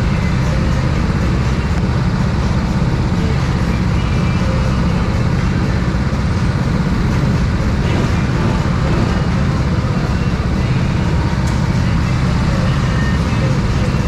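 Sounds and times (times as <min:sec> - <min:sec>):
go-kart engine running: 0:00.0 - 0:14.0.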